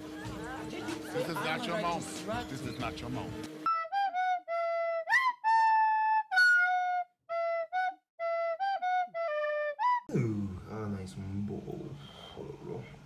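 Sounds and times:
solo flute melody: 0:03.6 - 0:10.1.

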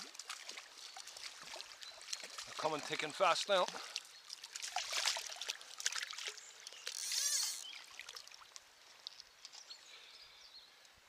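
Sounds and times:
water drips: 0:00.0 - 0:09.8
stream flowing: 0:00.0 - 0:10.1
fish splashing in water: 0:03.7 - 0:08.5.

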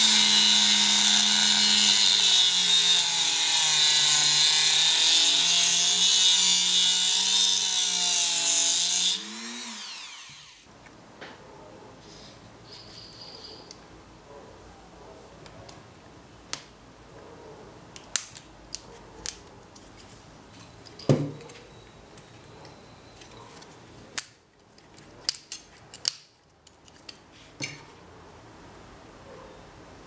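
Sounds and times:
metal strip snipping and crinkling: 0:23.6 - 0:27.2.

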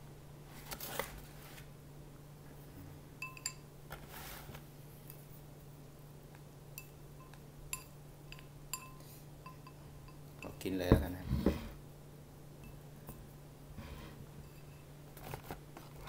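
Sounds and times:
low steady hum: 0:00.0 - 0:16.0
chopsticks clinking against a bowl: 0:03.2 - 0:03.7, 0:06.8 - 0:10.7.

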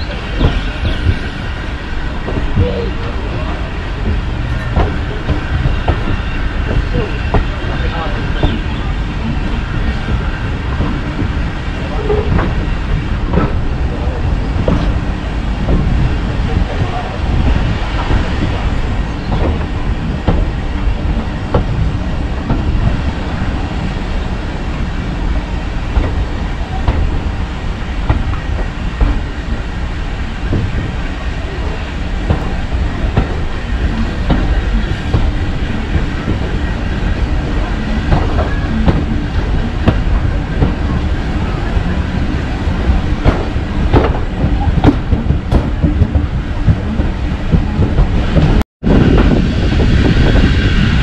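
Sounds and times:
train rumbling on track: 0:00.0 - 0:51.0
wheels clicking over rail joints: 0:25.9 - 0:48.6.

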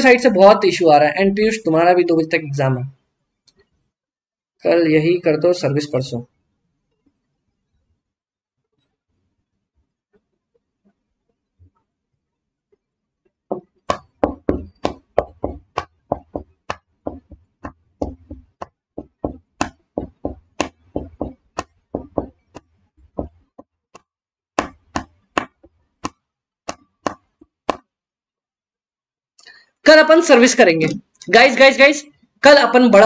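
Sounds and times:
rapid sharp taps: 0:13.5 - 0:27.9.

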